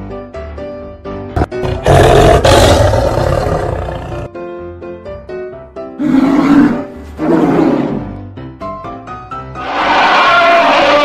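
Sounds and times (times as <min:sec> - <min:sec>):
toy big cat roar: 0:01.4 - 0:04.3.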